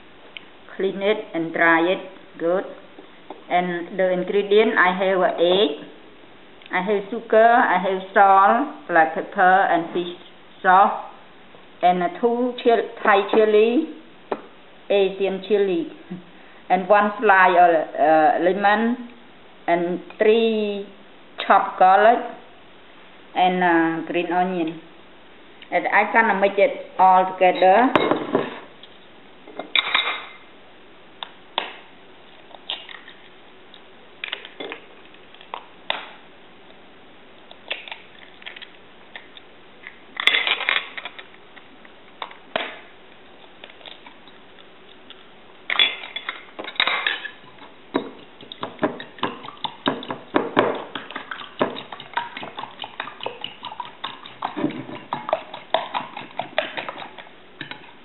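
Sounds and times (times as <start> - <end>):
eggs cracked against bowl: 45.7 - 58.0
spoon beating eggs in bowl: 45.7 - 58.0.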